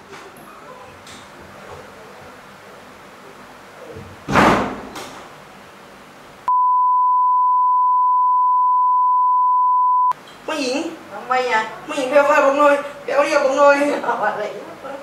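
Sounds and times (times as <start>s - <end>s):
high-pitched test tone beep: 6.5s - 10.2s.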